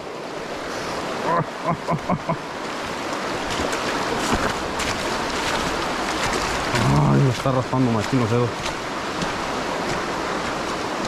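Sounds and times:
creek water rushing over stones: 0.0s - 11.0s
person murmuring: 1.2s - 2.4s.

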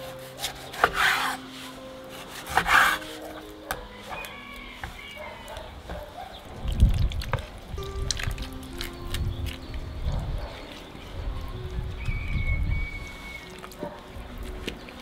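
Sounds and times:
knife sawing through meat: 0.0s - 3.4s.

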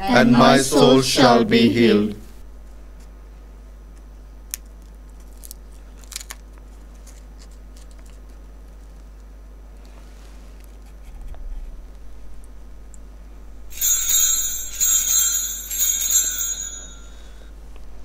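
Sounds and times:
altar bells ringing: 13.7s - 17.5s.

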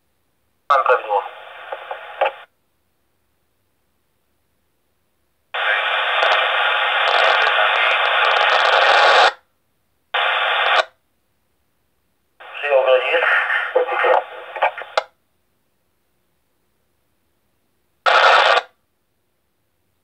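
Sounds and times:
radio static bursts: 0.7s - 2.5s, 5.6s - 9.4s, 10.2s - 11.0s, 12.4s - 15.1s, 18.1s - 18.8s.

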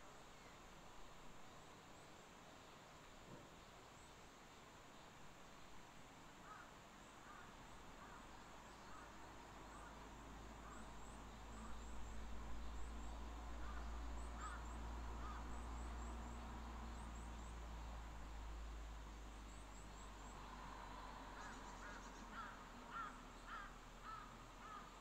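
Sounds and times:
crows cawing: 6.4s - 8.3s, 13.6s - 15.6s, 21.4s - 25.0s.

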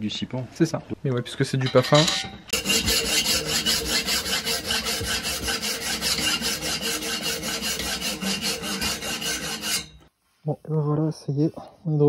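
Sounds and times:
hand file rasping on steel: 2.5s - 10.1s.

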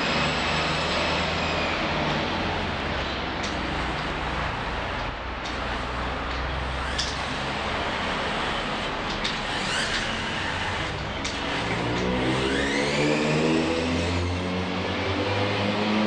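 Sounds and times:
motor humming: 0.0s - 14.4s
rising whine: 0.0s - 16.0s
sharp clicks: 3.0s - 4.2s, 9.0s - 12.2s.

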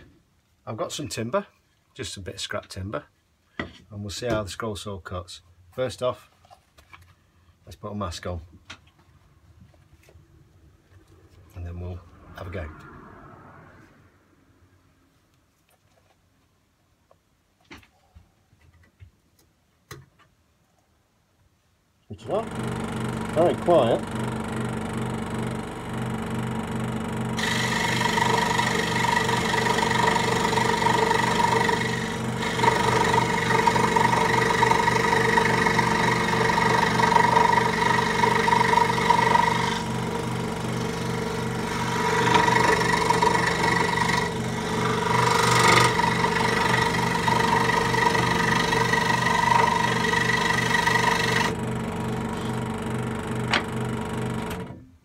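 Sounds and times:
saw cutting wood: 22.2s - 54.7s
scroll saw running: 22.2s - 54.8s.

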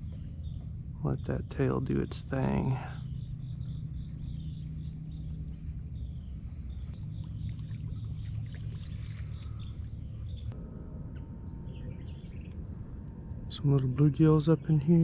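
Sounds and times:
faint high chirping: 0.0s - 10.6s
low rumble on water: 0.0s - 14.7s.

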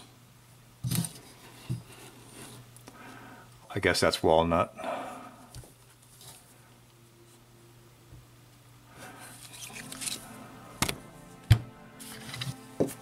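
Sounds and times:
metal objects rubbing and shuffling: 9.1s - 10.5s, 12.0s - 13.0s.

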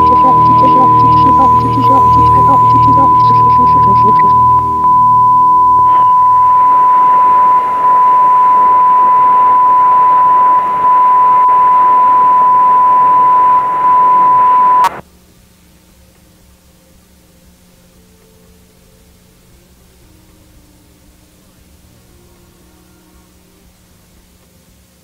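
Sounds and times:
steady line-up tone: 0.0s - 15.0s
faint hum: 0.0s - 25.0s.

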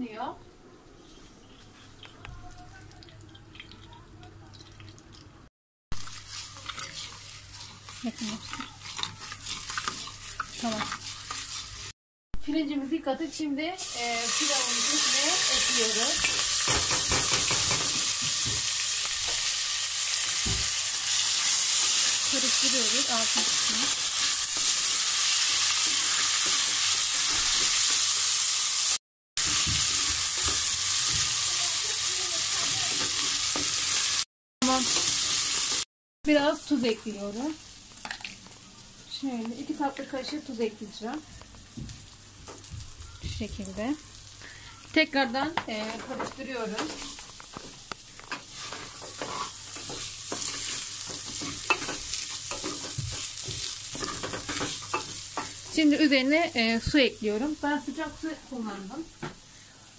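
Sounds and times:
rice sizzling in hot oil: 6.0s - 12.0s, 13.8s - 59.9s
wooden spoon stirring: 6.1s - 11.9s, 45.7s - 55.8s.

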